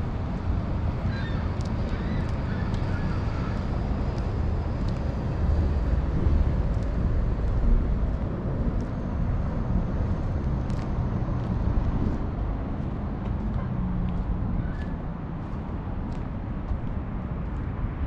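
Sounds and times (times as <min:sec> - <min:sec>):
distant road traffic rumble: 0:00.0 - 0:18.0.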